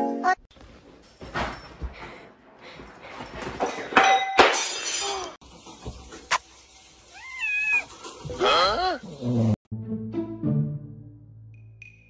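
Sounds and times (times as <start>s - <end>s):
clattering crash: 3.2s - 6.2s.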